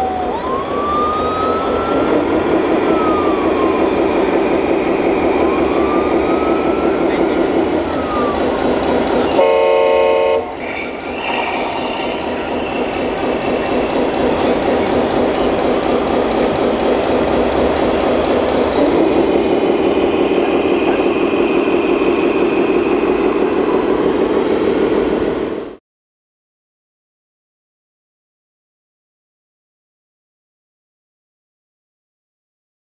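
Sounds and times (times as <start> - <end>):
diesel engine sound module: 0.0 - 25.8
air horn blast: 9.3 - 10.6.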